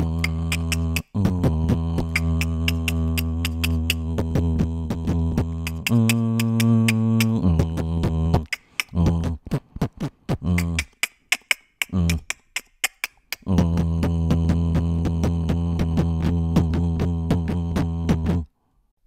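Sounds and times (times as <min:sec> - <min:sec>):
chopped stuttering vocal samples: 0:00.0 - 0:18.5
quick hi-hat ticks: 0:00.1 - 0:01.2, 0:02.0 - 0:04.0, 0:05.7 - 0:07.4, 0:08.4 - 0:09.0.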